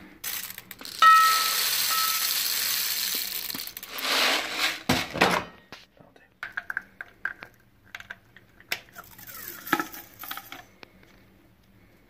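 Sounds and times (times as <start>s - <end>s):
plastic pellets pouring and rattling: 0.2s - 5.0s, 8.9s - 10.6s.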